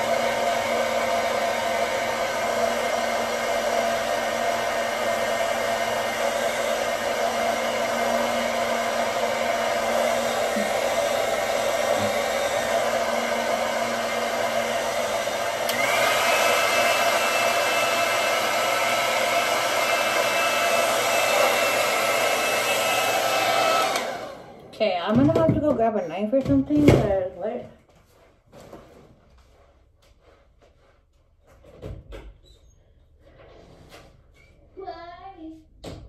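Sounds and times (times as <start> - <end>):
hair dryer blowing: 0.0 - 27.3
hair dryer switch click: 15.6 - 16.2, 23.8 - 24.2.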